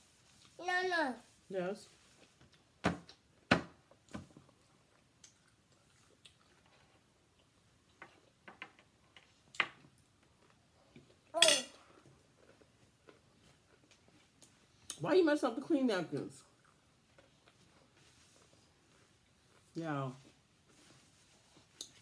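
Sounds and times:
fork clinking on glass plate: 11.4 - 11.8.

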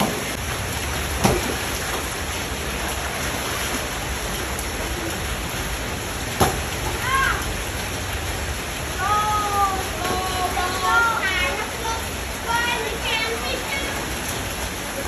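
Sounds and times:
heavy rain falling: 0.0 - 15.0
splashes in floodwater: 0.0 - 15.0
child calling: 7.0 - 7.5, 9.0 - 14.1.

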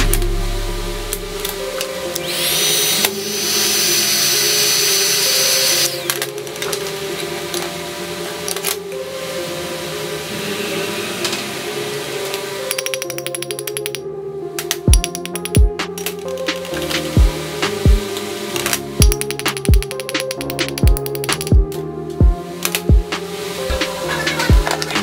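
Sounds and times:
power tool motor whining: 2.2 - 6.2
metal parts clicking on workbench: 12.7 - 14.0, 14.6 - 17.0, 18.6 - 21.8.

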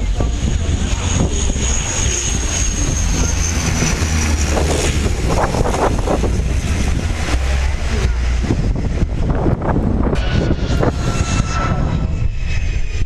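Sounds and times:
high engine whine: 0.0 - 13.0
turboprop engine rumble: 0.0 - 13.0.

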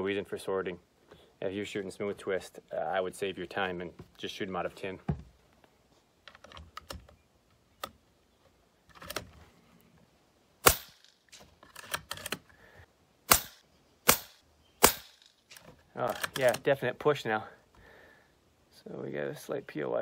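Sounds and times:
air rifle shots: 10.6 - 11.1, 13.3 - 15.3.

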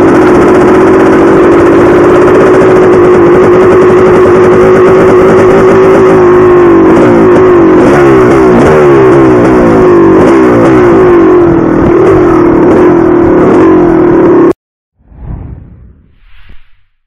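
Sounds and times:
dirt bike engine revving: 0.0 - 14.6.

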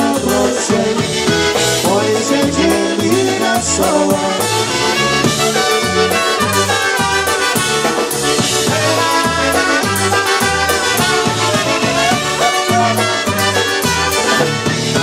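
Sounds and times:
electric bass: 0.0 - 15.0
polka band playing: 0.0 - 15.0
trumpets playing melody: 0.0 - 15.0.

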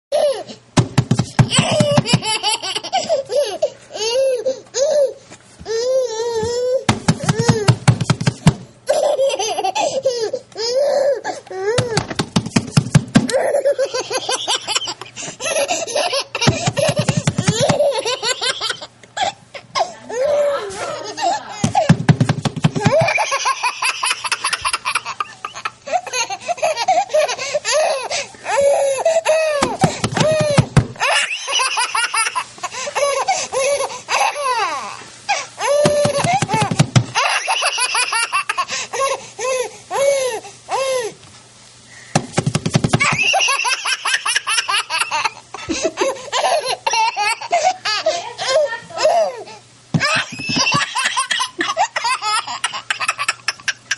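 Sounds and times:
baby laughing: 0.1 - 0.6, 1.4 - 7.8, 8.9 - 12.0, 13.3 - 21.9, 22.7 - 40.3, 43.0 - 53.9.

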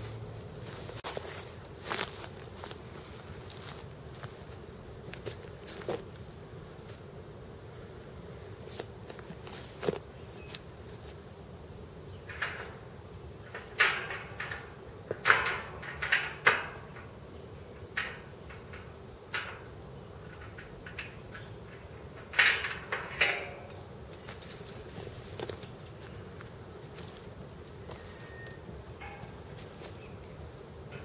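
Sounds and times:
boots crunching on dry leaves: 0.0 - 4.5.

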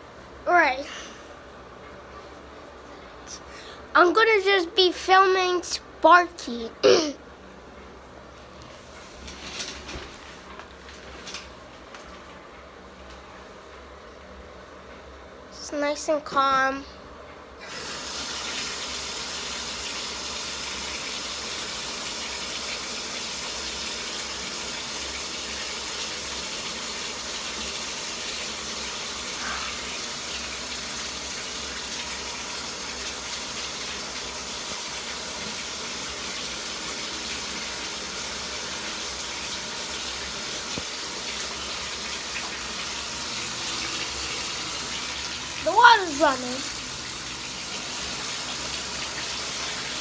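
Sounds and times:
water running into bathtub: 17.6 - 50.0.

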